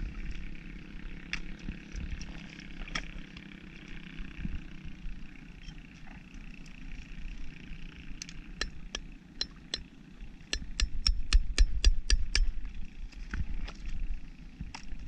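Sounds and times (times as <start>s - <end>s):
low outdoor rumble: 0.0s - 15.0s
hammer tapping on shells: 10.5s - 12.5s.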